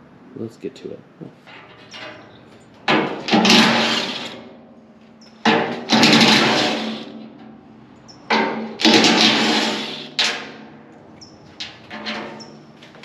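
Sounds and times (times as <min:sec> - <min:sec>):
impact driver rattling: 0:05.4 - 0:07.2, 0:08.3 - 0:10.7.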